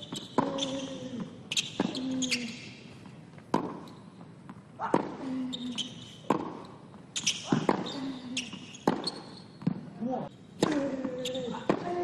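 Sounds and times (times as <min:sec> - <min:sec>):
ball bouncing on hard court: 0:00.0 - 0:02.5, 0:03.3 - 0:09.9, 0:10.6 - 0:12.0
sneakers squeaking: 0:00.0 - 0:12.0
racket striking tennis ball: 0:03.5 - 0:05.3, 0:06.2 - 0:09.9.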